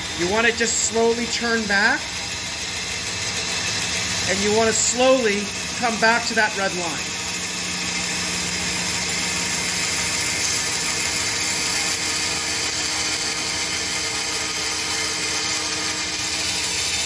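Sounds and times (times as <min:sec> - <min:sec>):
bandsaw cutting wood: 0:00.0 - 0:17.0
machine hum: 0:00.0 - 0:17.0.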